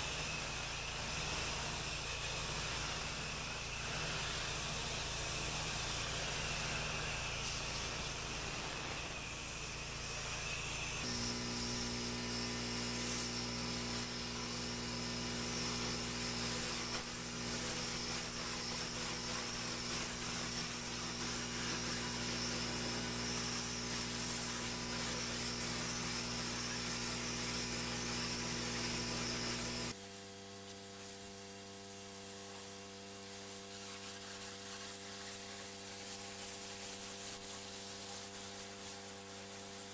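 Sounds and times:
pressure washer machine hum: 0.0 - 30.0
pressure washer water spray hiss: 0.0 - 39.9.

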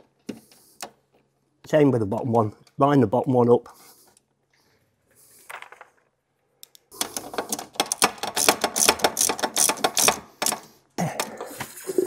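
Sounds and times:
hand ratchet clicking: 7.0 - 10.7.

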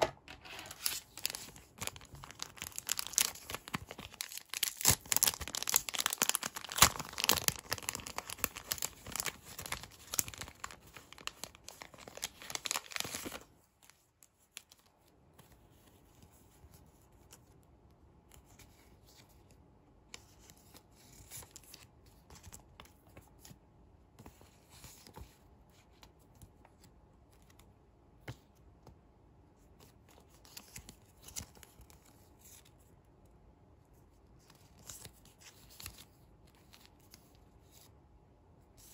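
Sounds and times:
plastic bag crinkling and tearing: 0.6 - 13.5.

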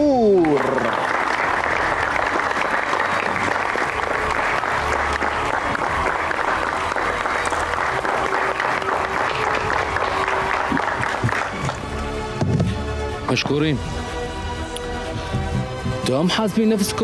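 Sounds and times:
audience applauding: 0.0 - 12.2.

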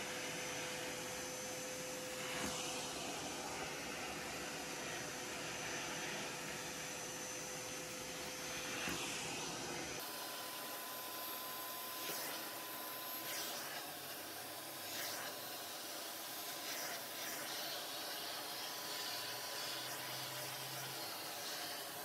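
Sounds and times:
vacuum cleaner running: 0.0 - 22.0.

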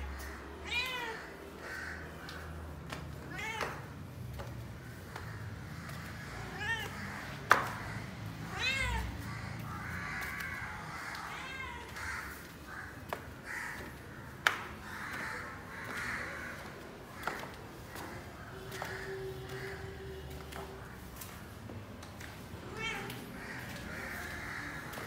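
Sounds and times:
cat meowing: 0.6 - 1.4, 3.2 - 4.0, 6.5 - 7.2, 8.4 - 9.3, 10.5 - 12.0, 22.6 - 23.3.

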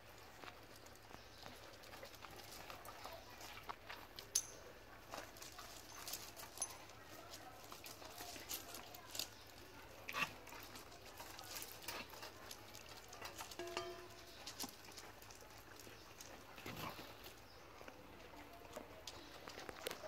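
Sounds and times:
dogs eating from metal bowls: 0.0 - 20.0
clinks of teeth and dishes: 4.2 - 4.7, 5.9 - 6.9, 13.2 - 14.8.

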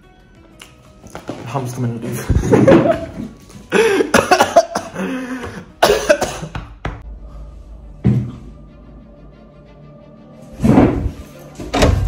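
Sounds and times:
man coughing: 3.7 - 6.6.

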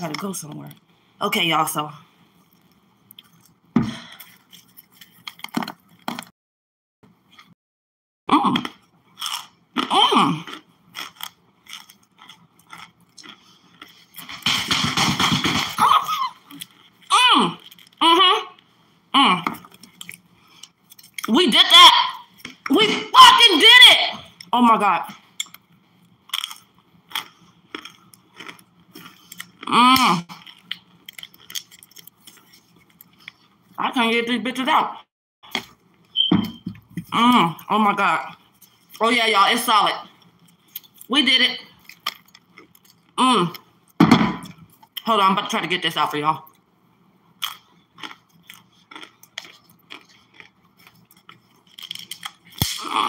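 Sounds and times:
crunchy chewing: 8.6 - 14.4, 16.5 - 18.0, 19.6 - 21.3, 25.4 - 29.7, 30.3 - 33.7, 41.8 - 43.2, 47.4 - 53.0.

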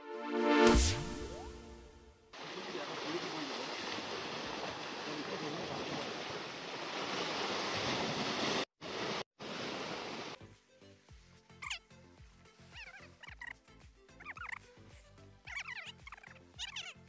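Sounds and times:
surf washing against rocks: 2.4 - 10.4.

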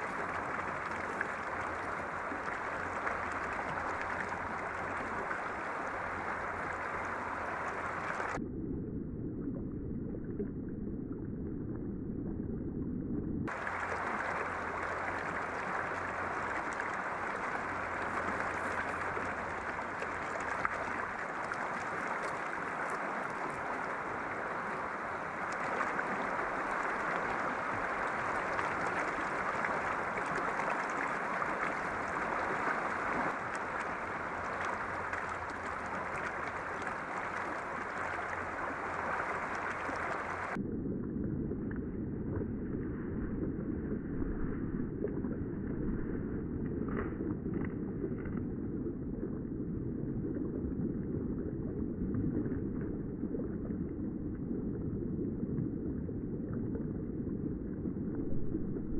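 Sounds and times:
river water rushing: 13.5 - 40.6.

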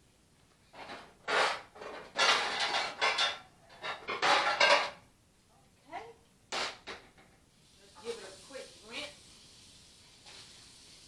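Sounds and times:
pots and pans clattering: 0.7 - 5.0.

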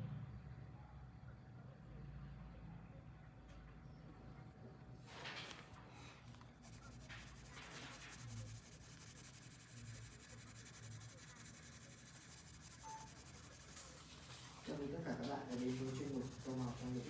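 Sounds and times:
pencil scratching on paper: 6.6 - 17.0.

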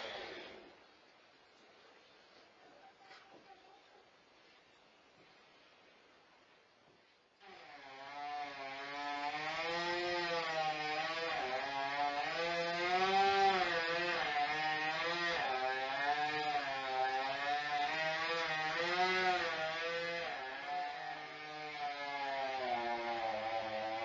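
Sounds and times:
chainsaw engine revving: 0.0 - 0.6, 7.4 - 24.0.

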